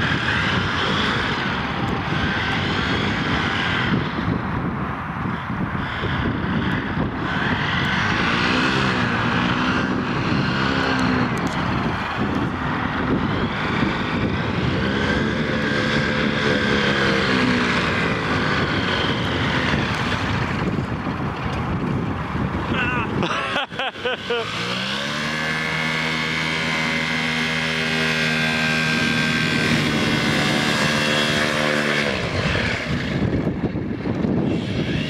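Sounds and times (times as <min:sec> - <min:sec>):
paramotor engine running: 0:00.0 - 0:35.0.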